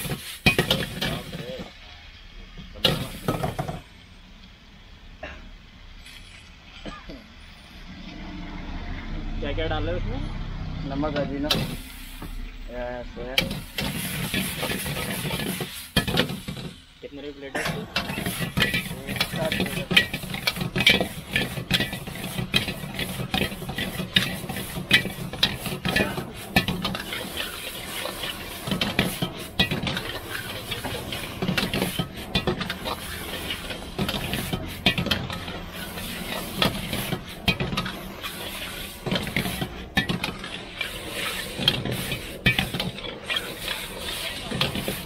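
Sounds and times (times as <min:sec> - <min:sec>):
metal spatula clanking in a wok: 0:17.6 - 0:45.0.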